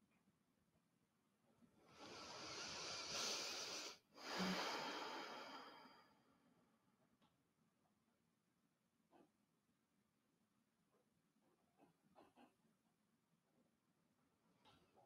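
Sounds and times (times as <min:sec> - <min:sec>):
woman breathing deeply: 0:01.9 - 0:06.2.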